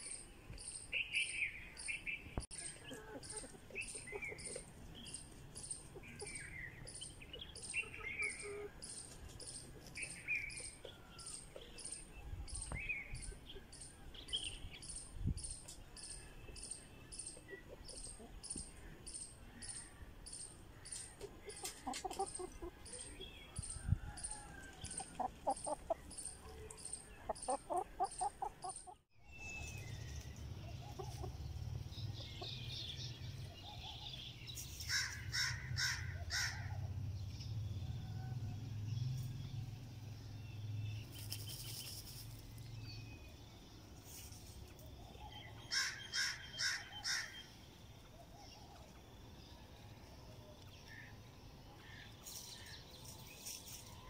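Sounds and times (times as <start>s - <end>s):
soft bird sounds: 38.9s - 54.0s.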